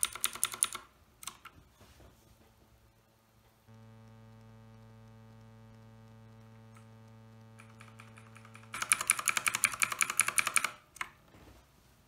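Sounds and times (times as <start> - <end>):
mechanical keyboard clicks: 0.0 - 1.5, 7.6 - 11.2
electrical mains hum: 0.0 - 12.0.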